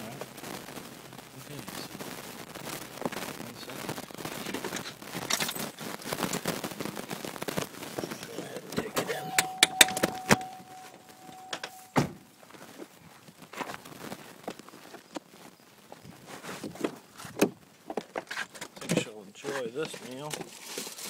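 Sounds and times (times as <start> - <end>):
handling noise: 7.9 - 12.3
car warning tone: 8.2 - 12.2.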